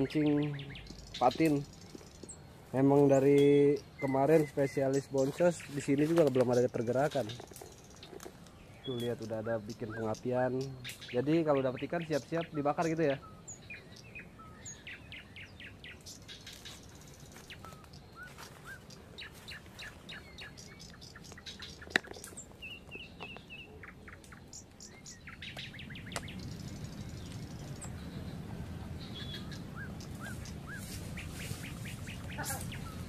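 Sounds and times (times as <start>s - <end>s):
birds chirping: 0.0s - 33.0s
low rumble: 25.7s - 33.0s.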